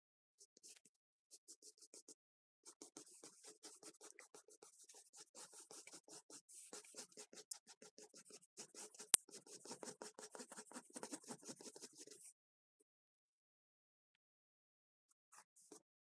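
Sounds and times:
pencil scratching on paper: 2.7s - 12.3s.

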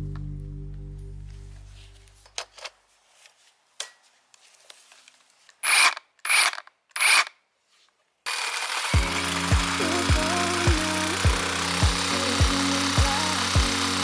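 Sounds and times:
reciprocating saw running: 5.6s - 7.3s, 8.3s - 14.0s
saw cutting into tree trunk: 5.6s - 7.3s, 8.3s - 14.0s.

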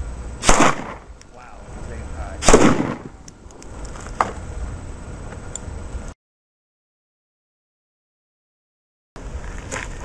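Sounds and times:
loud gunshots: 0.4s - 1.1s, 2.3s - 3.2s.

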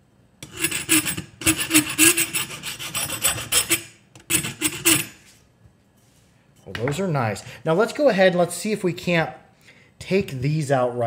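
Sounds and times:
hand file rasping on steel: 0.4s - 5.2s.

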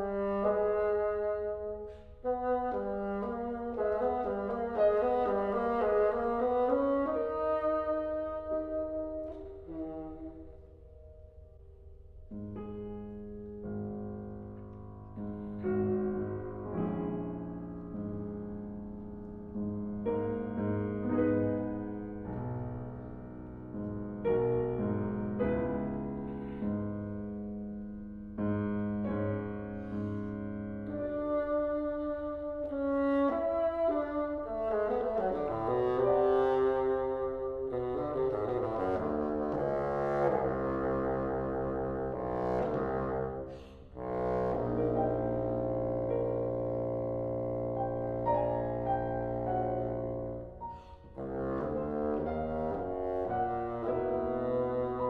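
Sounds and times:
piano chords: 0.0s - 55.0s
bowed double bass: 12.6s - 55.0s.

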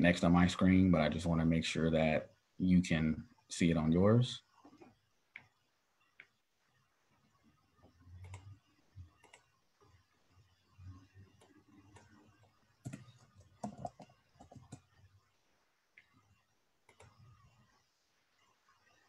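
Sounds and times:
faint clicks and taps: 4.6s - 10.0s, 10.9s - 15.2s, 15.9s - 17.6s.

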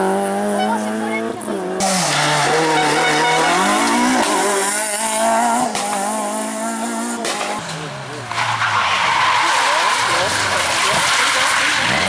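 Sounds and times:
rally car engine accelerating: 0.0s - 12.0s.

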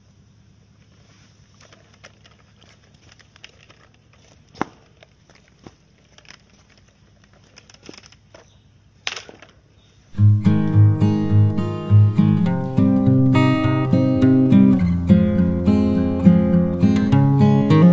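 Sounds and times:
strummed acoustic guitar music: 10.2s - 17.9s.

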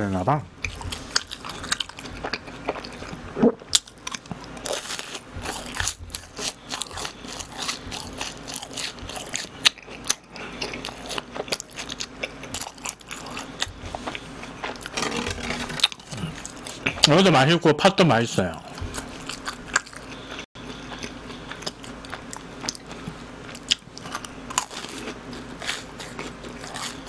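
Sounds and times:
crisp crunching of fried snacks: 3.8s - 13.6s, 21.0s - 27.0s.

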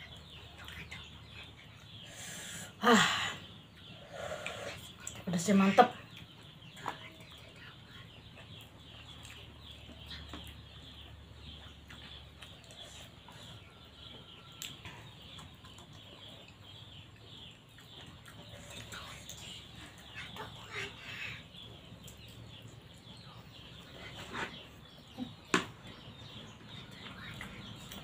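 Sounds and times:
chickens clucking: 8.3s - 28.0s.

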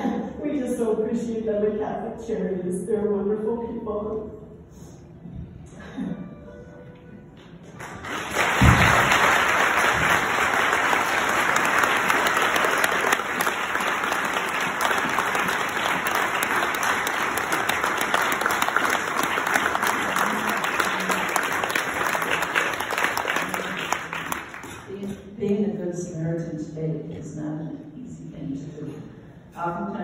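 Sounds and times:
people applauding: 7.4s - 25.1s.

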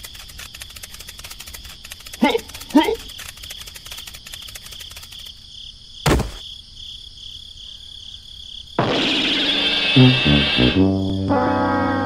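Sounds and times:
crickets chirping: 0.0s - 11.7s
dull thump: 6.0s - 6.4s.

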